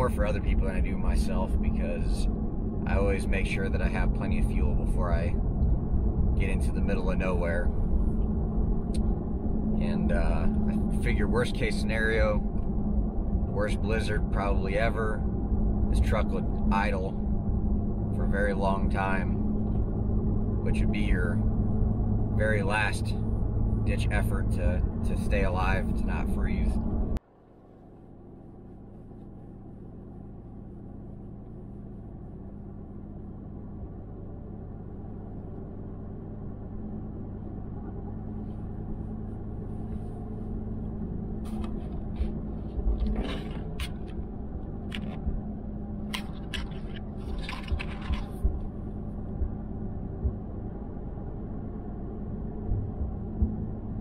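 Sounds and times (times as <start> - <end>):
engine and road drone: 0.0 - 54.0
interior clicks and rattles: 40.8 - 50.6.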